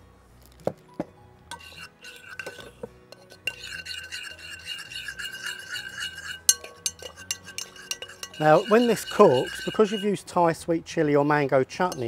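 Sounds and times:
quiet background music: 0.0s - 12.0s
spoon scraping a bowl: 1.5s - 10.4s
spoon clicking on bowl: 4.8s - 10.0s.

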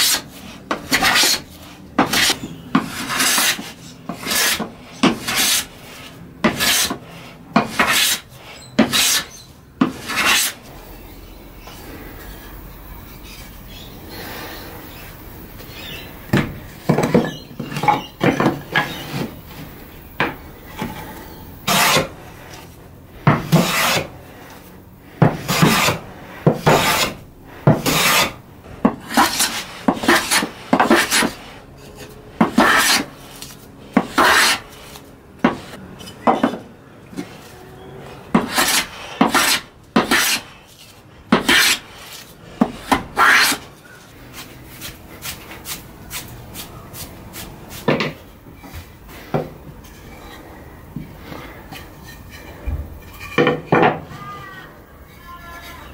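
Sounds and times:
hand plane shaving wood: 0.0s - 10.7s, 20.8s - 24.6s, 25.2s - 35.8s, 38.3s - 48.0s.

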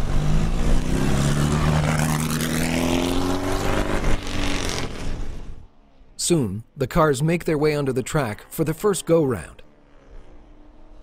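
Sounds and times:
race car engine accelerating: 0.0s - 5.6s.

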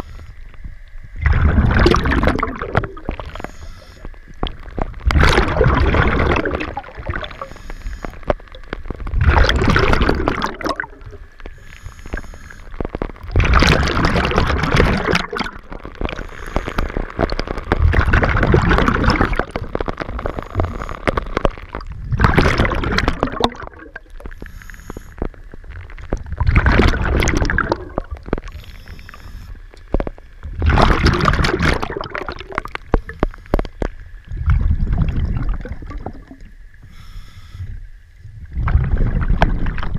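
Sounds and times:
gurgling rush of bubbles: 0.0s - 37.1s, 37.7s - 39.9s
diver breathing through regulator: 3.2s - 4.2s, 7.3s - 8.3s, 11.5s - 12.8s, 16.2s - 17.1s, 24.3s - 25.3s, 28.5s - 29.6s, 36.8s - 37.8s.

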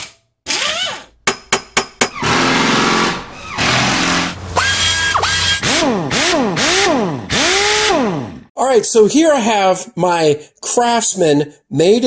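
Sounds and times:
whoosh: 2.0s - 5.9s
mechanical buzzing: 2.0s - 8.4s.

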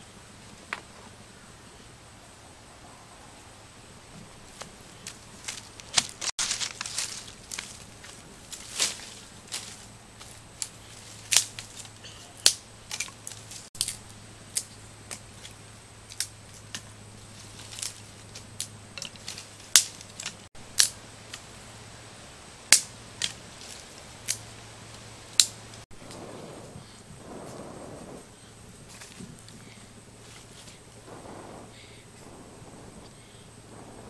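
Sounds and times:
sticks snapping and cracking: 4.6s - 21.4s, 22.7s - 26.2s.

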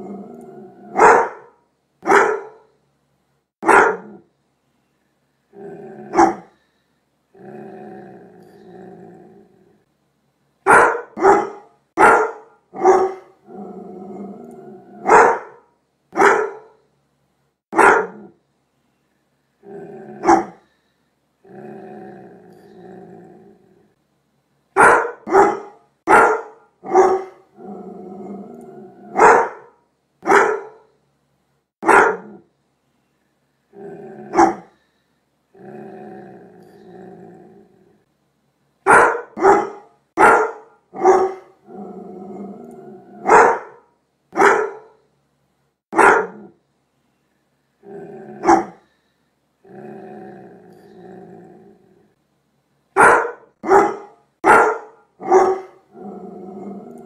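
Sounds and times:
dog growling low: 0.0s - 1.0s, 5.5s - 6.6s, 7.3s - 9.9s, 13.4s - 15.1s, 19.6s - 20.6s, 21.4s - 24.0s, 27.4s - 29.2s, 33.7s - 34.8s, 35.5s - 38.1s, 41.6s - 43.3s, 47.8s - 48.8s, 49.6s - 52.2s, 55.7s - 57.0s
dog barking: 0.9s - 2.7s, 3.6s - 4.2s, 6.1s - 6.5s, 10.7s - 13.3s, 15.0s - 16.8s, 17.7s - 18.3s, 20.2s - 20.6s, 24.8s - 27.4s, 29.1s - 30.9s, 31.8s - 32.4s, 34.3s - 34.7s, 38.9s - 41.5s, 43.2s - 45.0s, 45.9s - 46.5s, 48.4s - 48.8s, 53.0s - 55.8s.

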